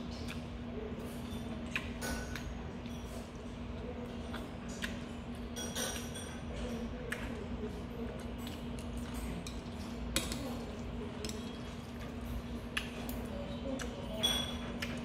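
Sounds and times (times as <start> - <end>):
low room hum: 0.0 - 15.0
metal chopsticks clinking on bowl: 11.1 - 12.0, 14.1 - 15.0.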